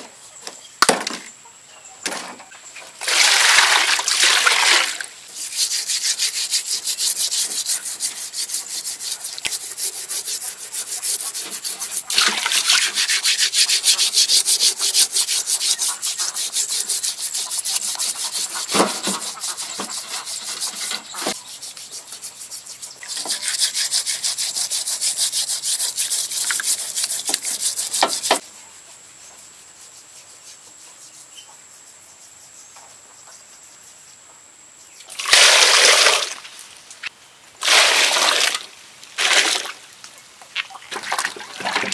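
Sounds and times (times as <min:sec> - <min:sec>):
steel wool scrubbing skin: 0:05.3 - 0:28.4.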